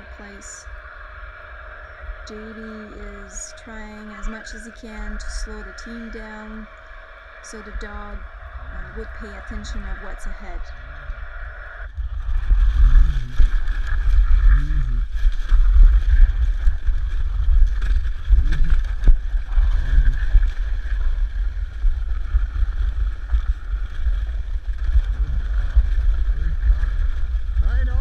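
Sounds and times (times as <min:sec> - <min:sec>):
wind rumble on microphone: 0:00.0 - 0:28.0.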